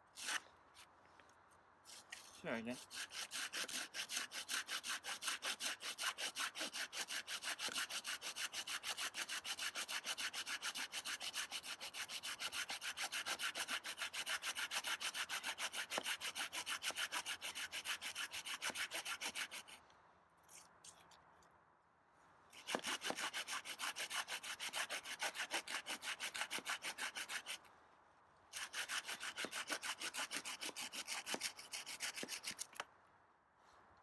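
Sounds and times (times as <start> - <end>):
saw rasping through wood: 2.2 - 19.8, 22.6 - 27.6, 28.5 - 32.8.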